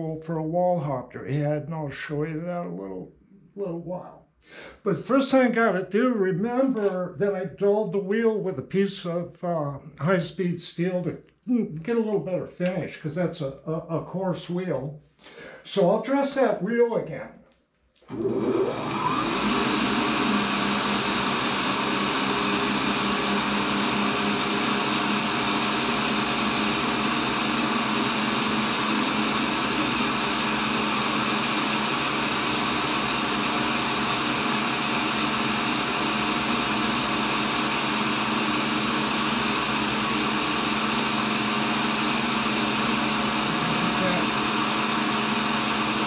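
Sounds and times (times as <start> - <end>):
grinder running: 18.1 - 46.0.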